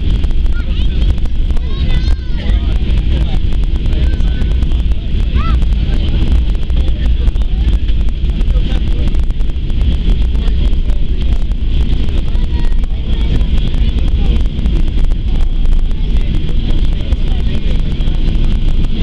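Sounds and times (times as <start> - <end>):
jet engine whine: 0.0 - 19.0
low rumble of wheels and airframe: 0.0 - 19.0.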